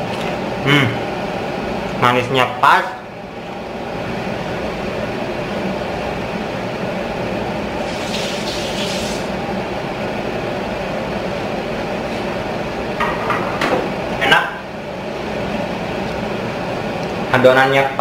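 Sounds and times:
oil frying rushing noise: 0:07.6 - 0:09.5.

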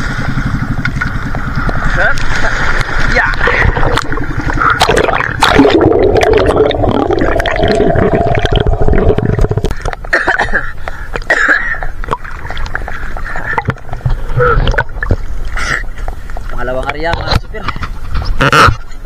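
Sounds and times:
sea water sloshing and splashing: 0:00.0 - 0:11.1, 0:11.9 - 0:16.6
muffled underwater gurgling: 0:00.3 - 0:10.0, 0:11.8 - 0:16.2.

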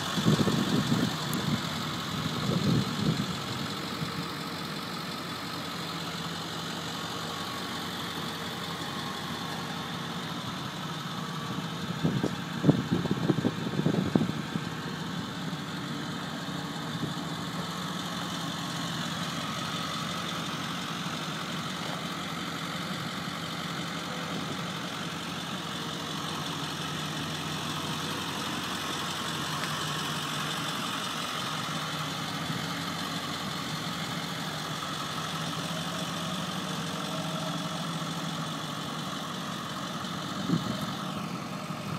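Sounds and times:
diesel engine idling: 0:00.0 - 0:41.9.

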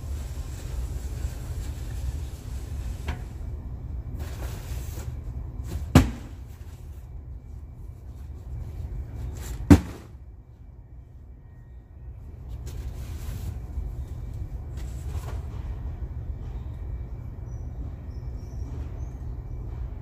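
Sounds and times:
steady low rumble: 0:00.0 - 0:20.0
cardboard boxes thumping on floor: 0:05.8 - 0:06.4, 0:09.6 - 0:10.1.

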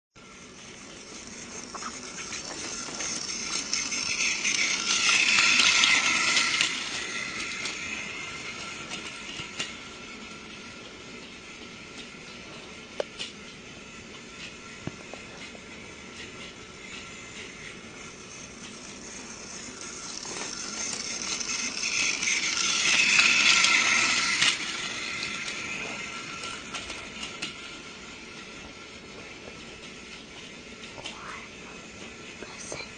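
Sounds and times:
small mechanism whirring: 0:00.2 - 0:32.9.

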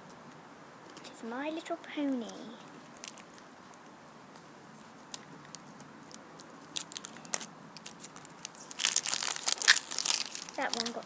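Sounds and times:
tape peeling off plastic: 0:02.8 - 0:11.0.

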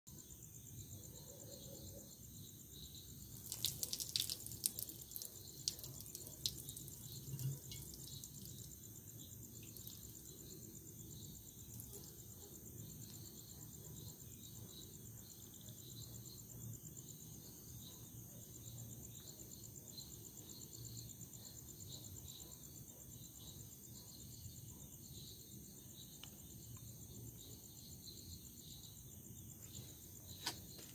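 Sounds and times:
crickets chirping: 0:00.1 - 0:30.9
urine splashing on glass and concrete: 0:03.2 - 0:08.8, 0:09.5 - 0:10.4.

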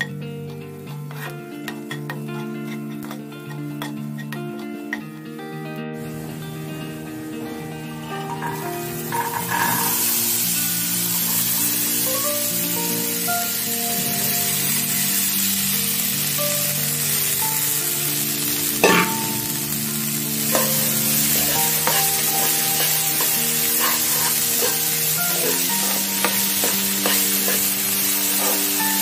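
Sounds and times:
food sizzling in a pan: 0:00.0 - 0:05.2, 0:06.0 - 0:29.0
metal ladle scraping a pan: 0:00.9 - 0:05.0, 0:08.0 - 0:10.3, 0:18.8 - 0:19.6, 0:20.5 - 0:29.0.

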